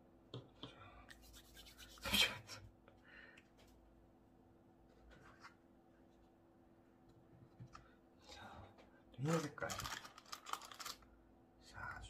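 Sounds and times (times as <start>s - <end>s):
hands rubbing soft toy: 1.1s - 2.3s.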